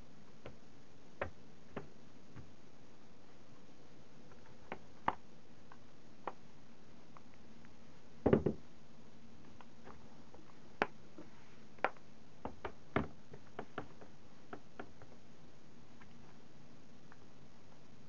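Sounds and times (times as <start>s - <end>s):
laptop case knocking on desk: 8.2s - 8.6s.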